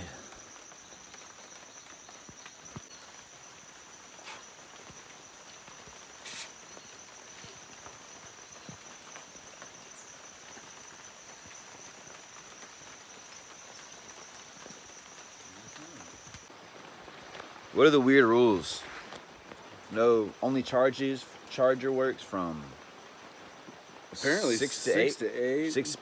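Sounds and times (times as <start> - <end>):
high-pitched insect drone: 0.0 - 16.5
soft background hiss: 0.0 - 26.0.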